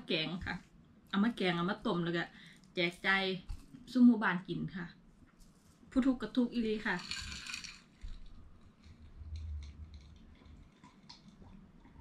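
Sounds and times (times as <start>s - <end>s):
sips and swallows: 8.8s - 12.0s.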